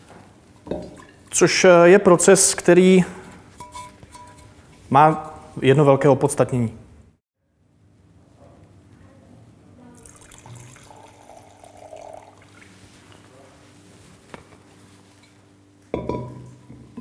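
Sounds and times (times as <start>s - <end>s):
wine trickling into a glass: 10.0s - 12.8s.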